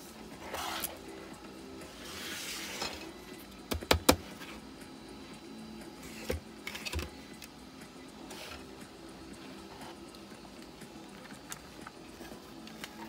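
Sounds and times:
soft background music: 0.0s - 13.0s.

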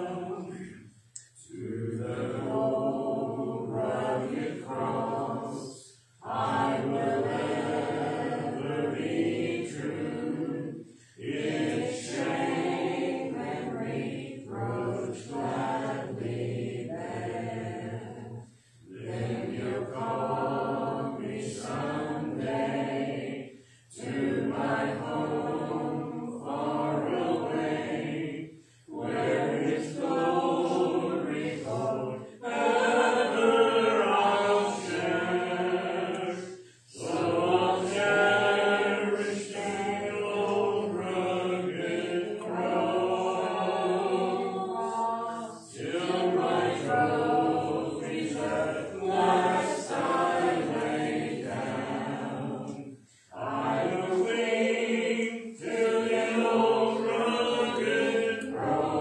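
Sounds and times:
congregation singing a hymn: 0.0s - 59.0s.

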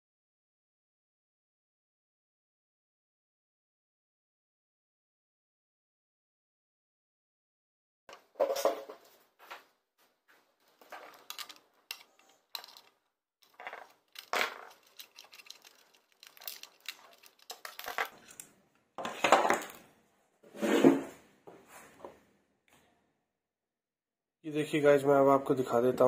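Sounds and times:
parts clattering on a tabletop: 8.1s - 9.1s, 10.8s - 19.9s
knocks and scrapes: 8.1s - 9.7s, 10.3s - 22.2s.

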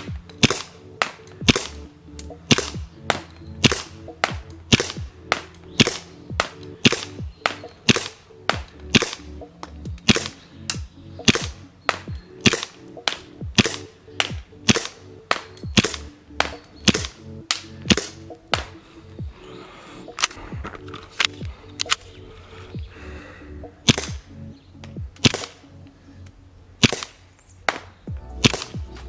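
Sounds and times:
airsoft pistol shots: 0.0s - 1.9s, 2.5s - 9.3s, 10.0s - 18.7s, 23.8s - 24.3s, 25.2s - 25.6s, 26.8s - 28.8s.

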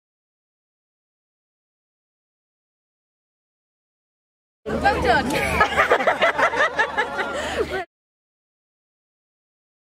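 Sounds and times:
woman laughing heartily: 5.4s - 7.9s.

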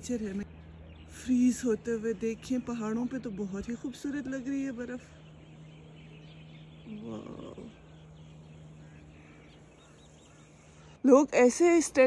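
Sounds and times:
faint low hum: 0.0s - 12.0s
distant animal call: 5.8s - 11.0s.

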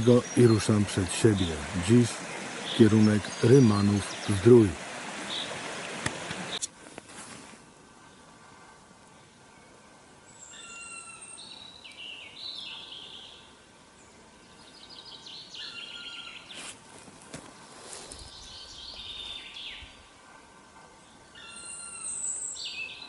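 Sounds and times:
songbirds singing: 0.0s - 6.7s, 8.0s - 16.7s, 17.9s - 20.2s, 20.9s - 23.0s
soft knocks from walking: 16.9s - 18.2s.

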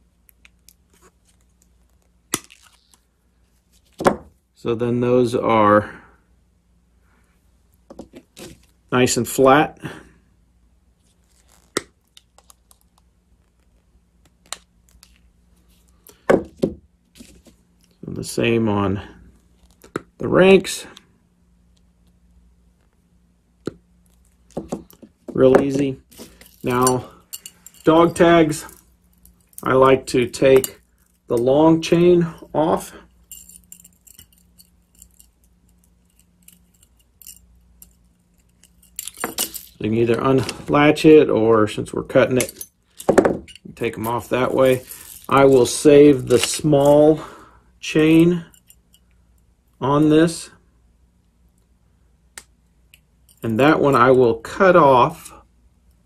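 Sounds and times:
metal ball chain and tags clinking: 24.2s - 41.0s, 42.0s - 49.4s
small metal objects clicking: 33.2s - 39.8s.

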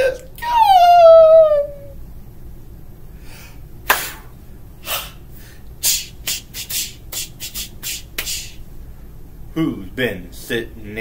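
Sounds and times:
person pretend crying: 0.0s - 2.0s.

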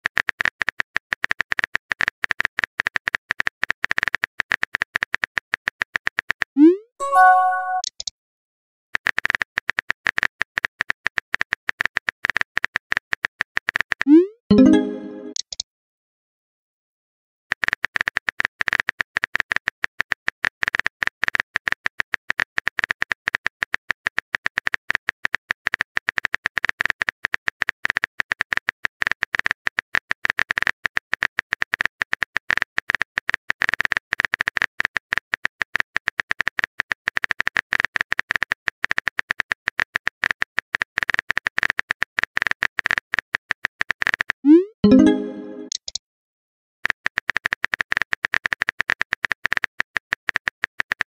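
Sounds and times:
keyboard typing clicks: 7.0s - 8.1s, 14.5s - 15.6s, 44.5s - 46.0s.

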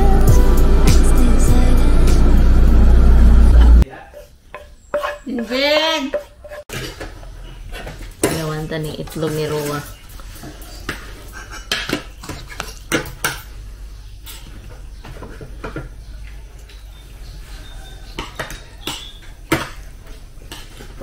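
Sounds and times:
cutlery clinking on a plate: 4.2s - 5.5s, 18.2s - 19.8s.

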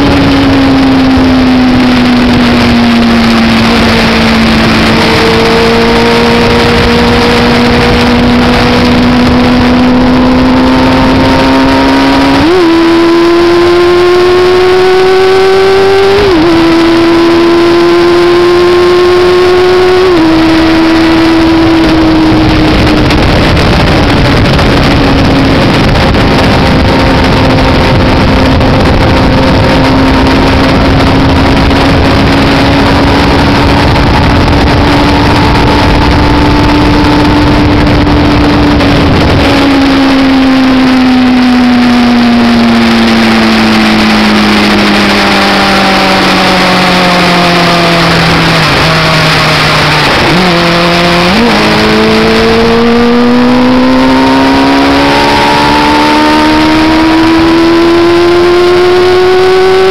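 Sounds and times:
motorcycle engine running: 0.0s - 59.9s
wind noise on microphone: 0.0s - 59.9s.

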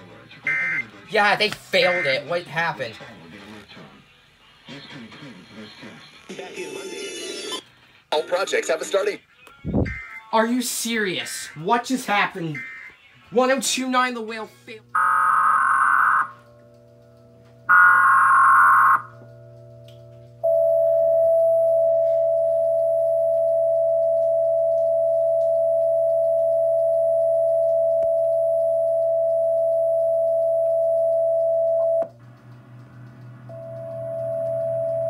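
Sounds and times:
buzzing data bursts: 9.7s - 12.9s, 14.8s - 19.5s
low steady hum: 10.8s - 35.0s
long steady alert tone: 12.5s - 12.9s, 14.9s - 16.7s, 17.6s - 19.4s, 20.4s - 32.1s.

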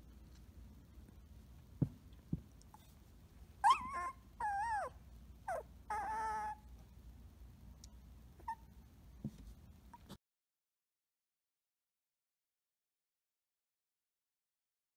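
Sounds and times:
puppy whining: 3.6s - 6.8s, 8.4s - 8.8s.

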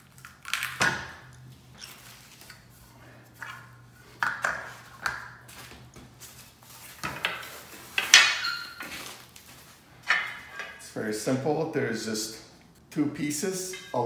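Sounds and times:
metal pieces knocking and clanking: 7.0s - 8.5s, 10.0s - 10.8s.

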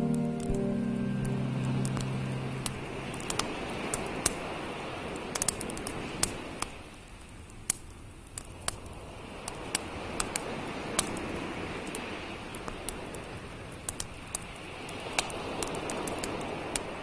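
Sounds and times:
campfire crackling and popping: 0.0s - 17.0s.

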